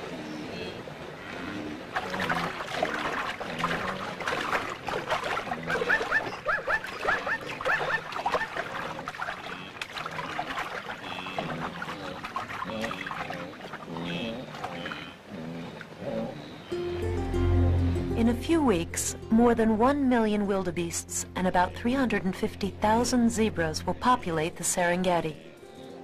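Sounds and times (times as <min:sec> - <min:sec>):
wild animals calling: 0:05.4 - 0:16.8.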